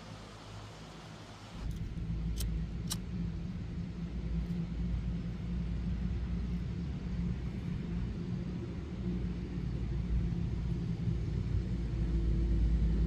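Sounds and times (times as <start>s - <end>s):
low rumble: 1.6s - 13.0s.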